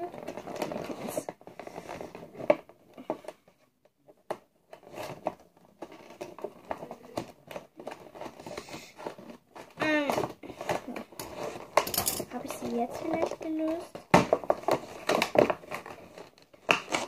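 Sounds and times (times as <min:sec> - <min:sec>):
packaging crinkling and clicking: 0:04.1 - 0:17.0.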